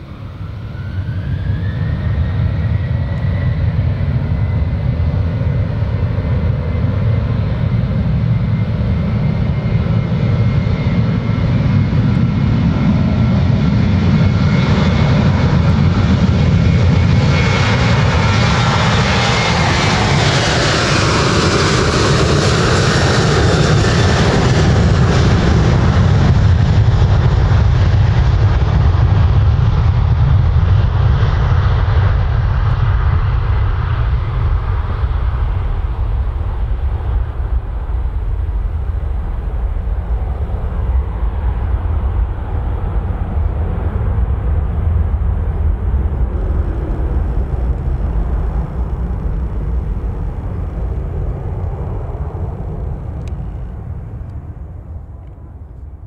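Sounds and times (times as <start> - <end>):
jet engines low rumble: 0.0 - 56.0
jet fan whine: 36.5 - 56.0.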